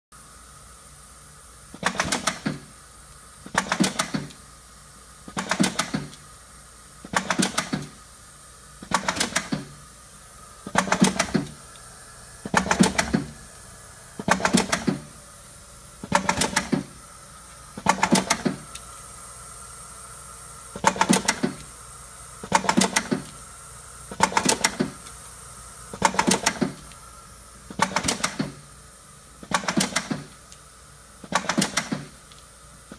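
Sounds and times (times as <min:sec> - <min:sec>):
steady machine hum: 0:00.2 - 0:32.9
rapid mechanical clicking and clattering: 0:01.8 - 0:02.7, 0:03.5 - 0:04.4, 0:05.3 - 0:06.2, 0:07.1 - 0:08.0, 0:08.8 - 0:09.8, 0:10.6 - 0:11.6, 0:12.4 - 0:13.4, 0:14.2 - 0:15.1, 0:16.0 - 0:17.0, 0:17.8 - 0:19.0, 0:20.8 - 0:21.7, 0:22.4 - 0:23.4, 0:24.1 - 0:25.1, 0:25.9 - 0:27.0, 0:27.7 - 0:28.7, 0:29.4 - 0:30.5, 0:31.2 - 0:32.4.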